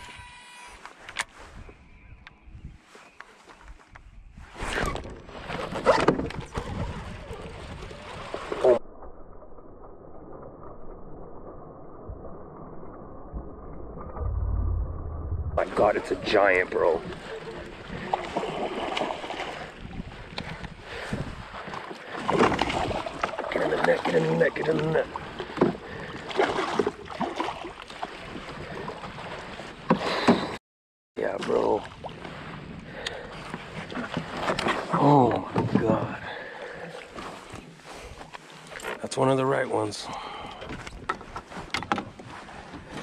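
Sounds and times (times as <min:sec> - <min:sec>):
fishing reel whirring: 0:00.0 - 0:00.8
water splashing beside boat: 0:04.6 - 0:08.8, 0:15.6 - 0:30.6, 0:31.2 - 0:39.0
low rumble: 0:08.8 - 0:16.2.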